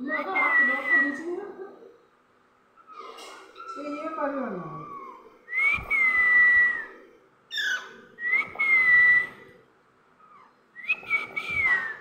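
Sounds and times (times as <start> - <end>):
parakeet whistle-like calls: 7.5 - 9.4.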